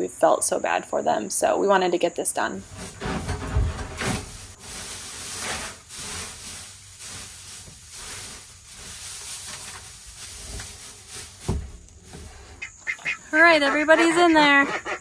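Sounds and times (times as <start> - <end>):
straw rustling and scratching: 2.5 - 14.2.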